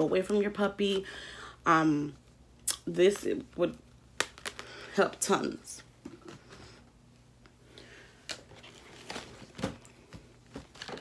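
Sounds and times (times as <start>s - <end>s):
items knocking and rustling: 8.4s - 11.0s.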